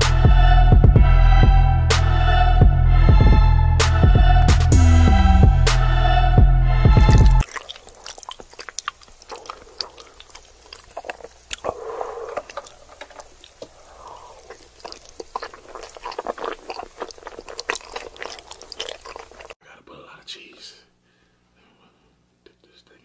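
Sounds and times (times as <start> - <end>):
wet sticky chewing: 7.0 - 19.6.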